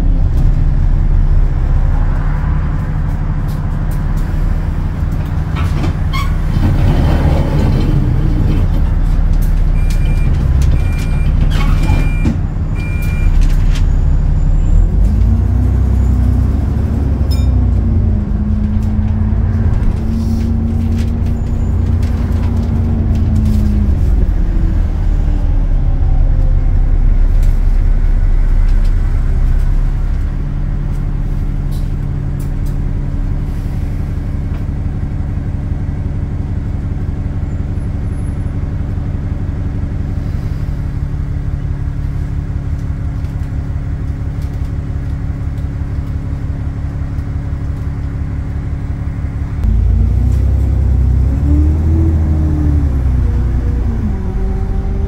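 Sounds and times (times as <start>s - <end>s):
bus engine drone: 0.0s - 55.0s
bus gearbox whine: 5.5s - 16.5s.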